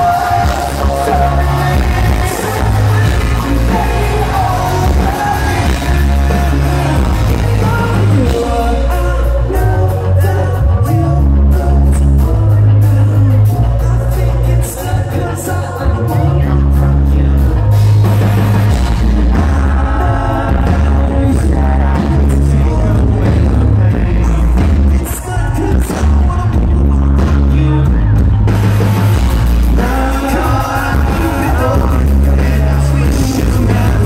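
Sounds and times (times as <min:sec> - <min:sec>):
person singing: 0:00.0 - 0:28.5, 0:29.1 - 0:34.0
live pop-rock band playing: 0:00.0 - 0:34.0.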